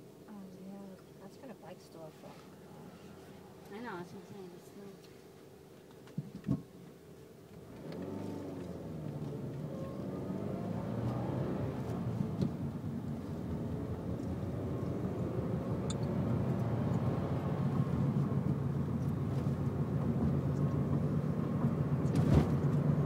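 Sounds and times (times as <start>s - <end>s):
car engine and road noise: 7.5s - 23.0s.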